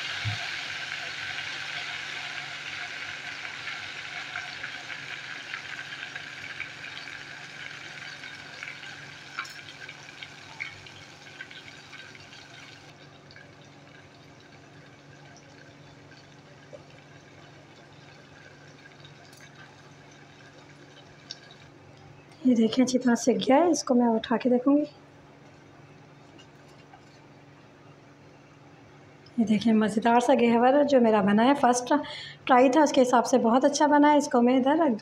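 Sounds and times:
batter deep-frying in hot oil: 0:00.0 - 0:22.3.

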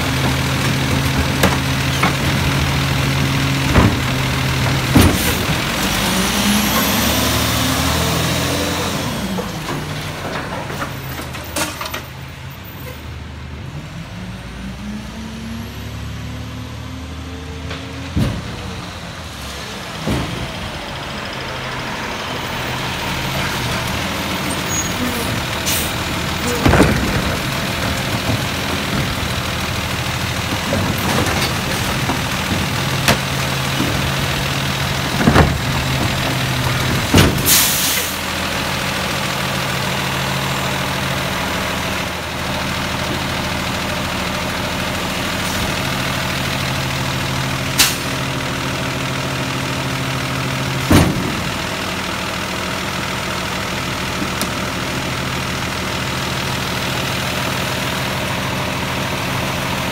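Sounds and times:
diesel engine idling: 0:00.0 - 0:11.5, 0:18.0 - 0:59.9
bins and jugs knocking: 0:35.0 - 0:37.5.

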